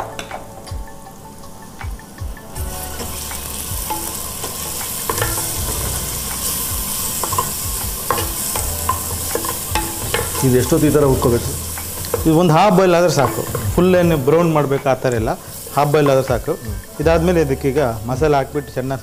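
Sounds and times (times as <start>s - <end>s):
vegetables sizzling in oil: 2.5s - 19.0s
wooden spatula scraping pot: 3.0s - 16.6s.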